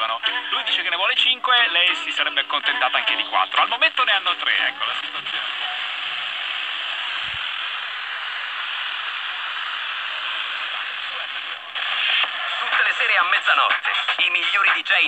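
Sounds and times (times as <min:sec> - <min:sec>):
radio static hiss: 0:00.0 - 0:15.0
distant radio station signal: 0:00.8 - 0:15.0.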